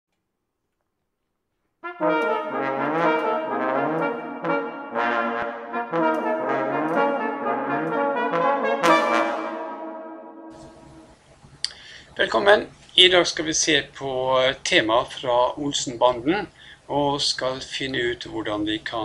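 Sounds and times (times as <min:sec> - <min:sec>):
brass ensemble playing: 0:01.8 - 0:11.2.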